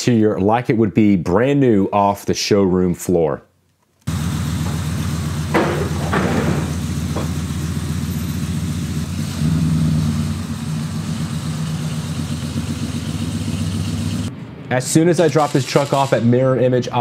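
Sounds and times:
pickup truck engine revving: 4.1s - 14.3s
short knocks: 5.5s - 7.5s.

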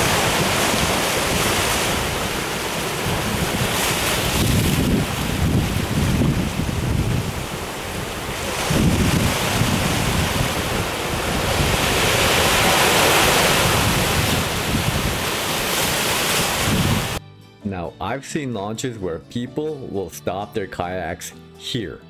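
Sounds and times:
ocean surf breaking on beach: 0.0s - 17.2s
wind buffeting microphone: 0.0s - 17.2s.

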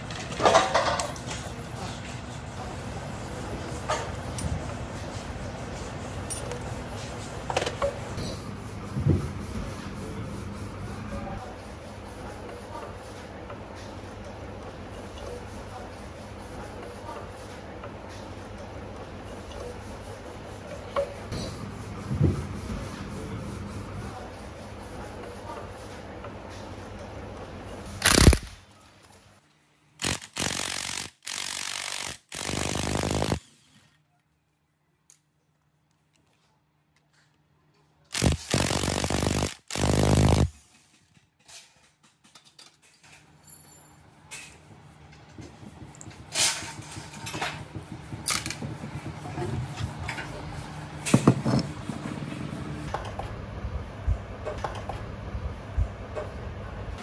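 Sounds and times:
impact wrench hammering: 30.0s - 33.4s, 38.1s - 40.5s.

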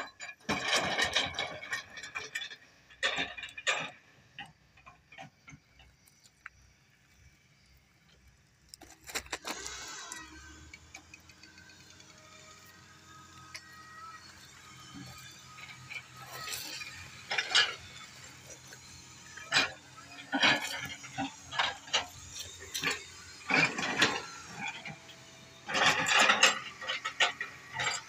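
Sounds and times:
stones clattering underfoot: 8.7s - 10.0s.

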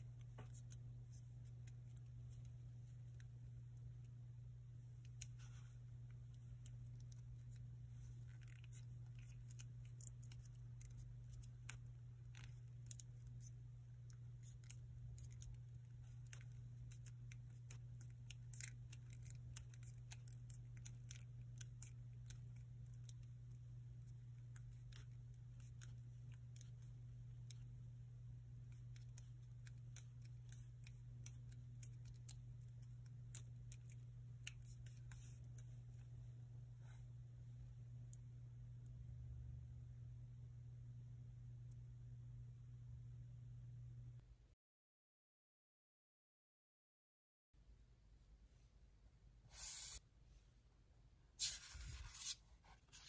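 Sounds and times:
steady low hum: 0.0s - 44.4s
paper crackles and ticks: 6.3s - 27.7s.

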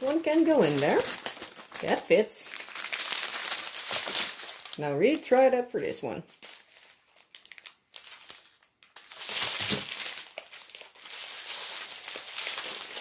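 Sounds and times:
plastic bags crinkling: 0.0s - 13.0s.

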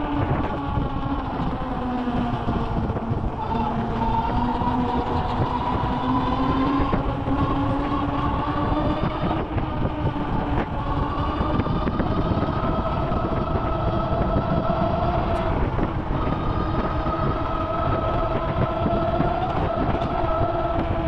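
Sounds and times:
electric motor whine: 0.0s - 21.0s
vehicle rumble: 0.0s - 21.0s.

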